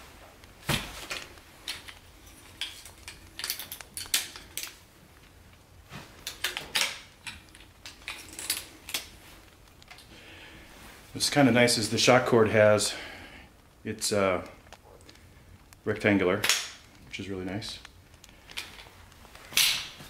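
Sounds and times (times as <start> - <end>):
metal poles clicking and clattering: 0.8 - 4.8, 6.1 - 9.2.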